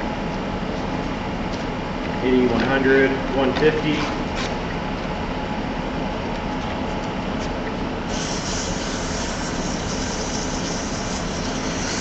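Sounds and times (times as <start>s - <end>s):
sandpaper sanding hiss: 8.1s - 12.0s.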